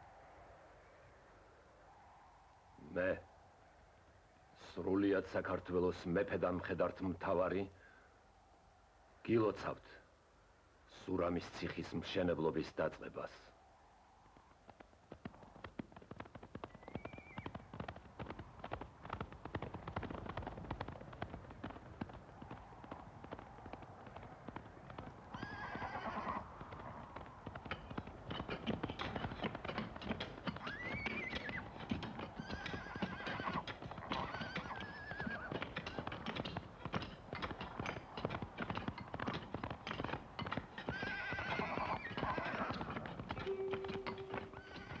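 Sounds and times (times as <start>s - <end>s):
horse hooves galloping: 13.6s - 45.0s
horses neighing: 25.2s - 27.3s, 28.2s - 45.0s.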